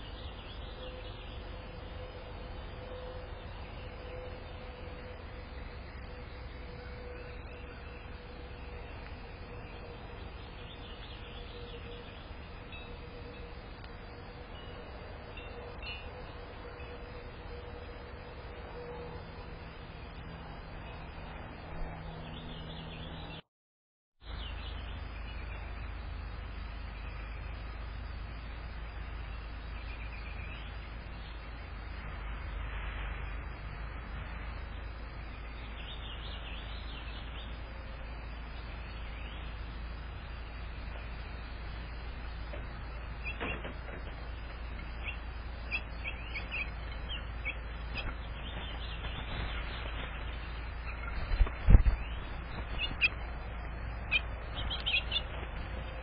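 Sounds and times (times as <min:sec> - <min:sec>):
songbird chirping: 0:00.0 - 0:23.4, 0:24.2 - 0:56.0
steady background noise: 0:00.0 - 0:23.4, 0:24.2 - 0:56.0
steady low hum: 0:00.0 - 0:23.4, 0:24.2 - 0:56.0
finches chirping: 0:42.8 - 0:43.6, 0:44.3 - 0:56.0.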